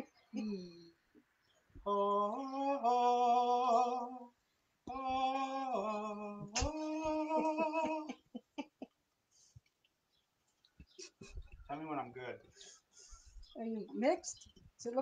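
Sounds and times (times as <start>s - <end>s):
person humming: 0.0s - 0.9s, 1.8s - 4.3s, 4.9s - 8.2s.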